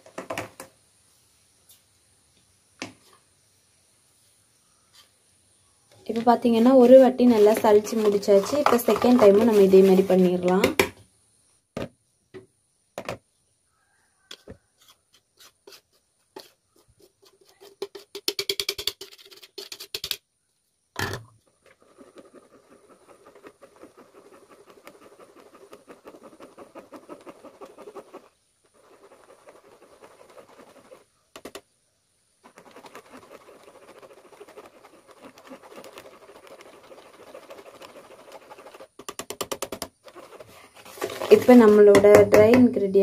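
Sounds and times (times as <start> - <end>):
whisk scratching in sieve: 6.1 - 10.8, 14.8 - 20.0, 21.6 - 31.6, 32.4 - 39.4, 40.0 - 42.2.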